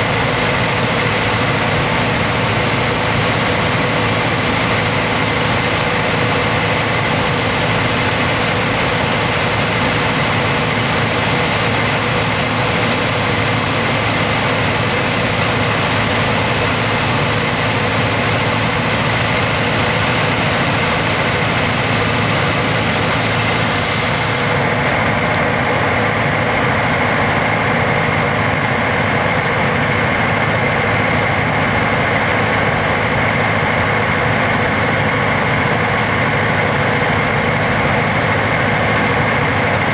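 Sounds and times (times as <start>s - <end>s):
aircraft engine and propeller droning: 0.0s - 39.9s
rush of hiss: 23.6s - 24.7s.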